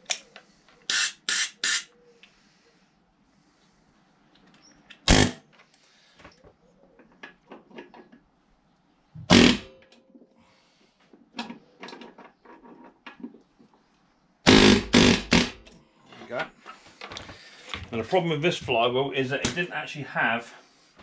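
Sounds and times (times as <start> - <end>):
pneumatic air hammer bursts: 0.9 - 1.9, 5.0 - 5.4, 9.3 - 9.7, 14.5 - 15.6.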